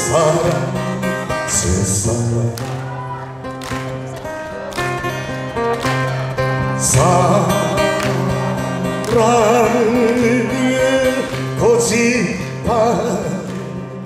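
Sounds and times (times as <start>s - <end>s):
man singing with vibrato: 0.0s - 3.0s, 6.5s - 14.0s
acoustic guitar strumming: 0.0s - 14.0s.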